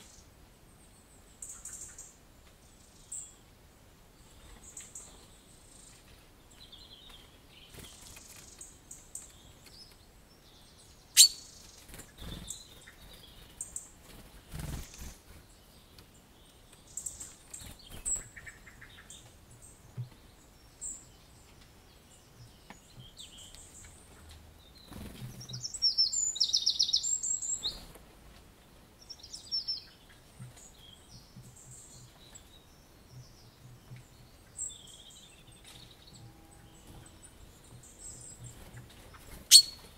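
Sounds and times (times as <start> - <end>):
wild birds chirping: 0.0 - 39.9
rapid high bird trill: 11.2 - 11.5, 39.4 - 39.9.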